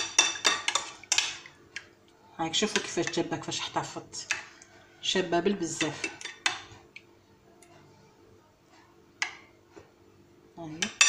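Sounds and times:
woman speaking: 2.4 - 4.4, 5.0 - 6.2, 10.6 - 11.0.

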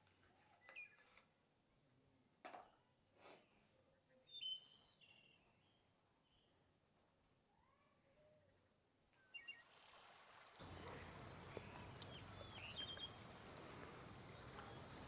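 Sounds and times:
faint outdoor ambience: 0.0 - 15.0
high bird chirps: 11.0 - 14.9.

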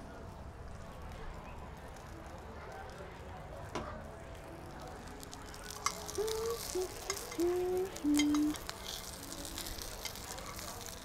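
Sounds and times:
meat sizzling in a pan: 4.8 - 11.0
tongs clicking: 5.6 - 11.0.

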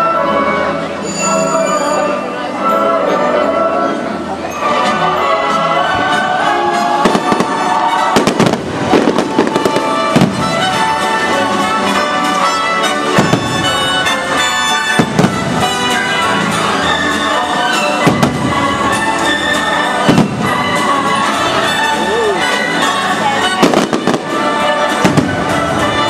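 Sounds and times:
orchestral music: 0.0 - 26.0
fireworks bursting with bangs: 7.0 - 21.9, 22.5 - 26.0.

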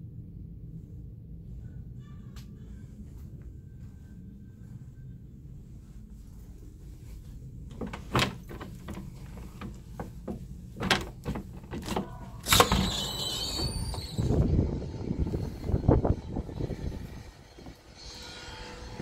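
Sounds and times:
outdoor rumble: 7.4 - 19.0
sliding glass door on track: 7.7 - 18.0.

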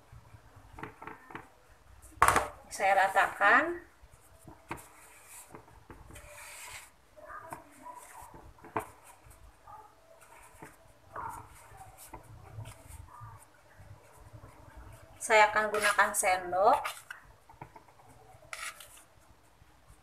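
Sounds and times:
spatula scraping cake batter: 2.8 - 20.0.

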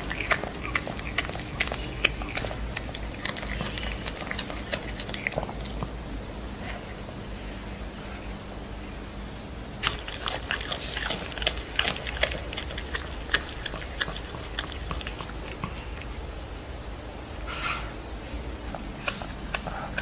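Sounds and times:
cat chewing with crunching: 0.0 - 6.1, 9.8 - 16.6, 18.5 - 20.0
low steady hum: 0.0 - 20.0.

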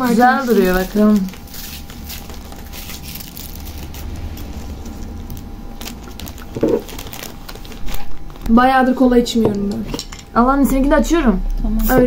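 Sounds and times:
straw wrapper crinkling: 0.0 - 8.9
low steady rumble: 0.0 - 12.0.

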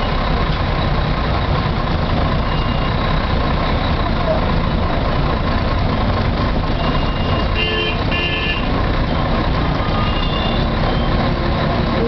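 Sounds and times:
traffic rumble: 0.0 - 12.0
vehicle horns tooting: 6.8 - 8.7, 9.9 - 10.7.

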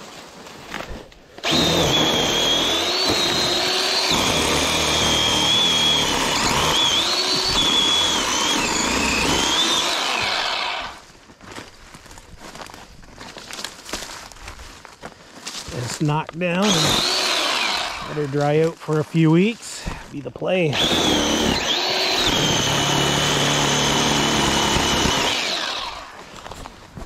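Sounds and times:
chainsaw cutting brush: 0.7 - 11.1, 15.7 - 26.8.

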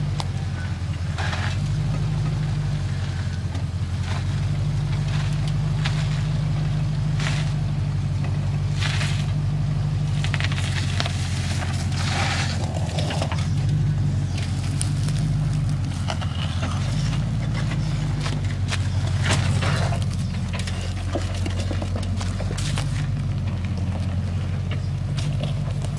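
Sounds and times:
off-road vehicle engine running: 0.0 - 25.9
tyres clicking and knocking on rock: 12.5 - 25.9.

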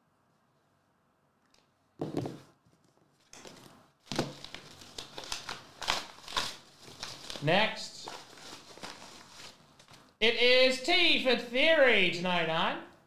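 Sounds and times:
paper crinkling and rustling: 2.7 - 10.2.

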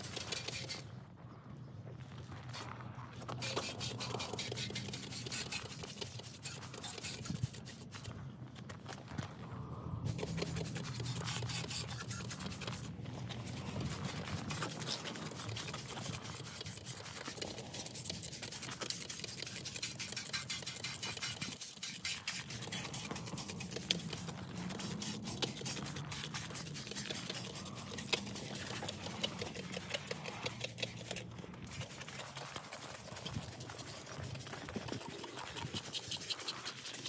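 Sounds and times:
pressure washer spray on metal: 0.0 - 0.8, 3.4 - 8.0, 13.9 - 34.4.

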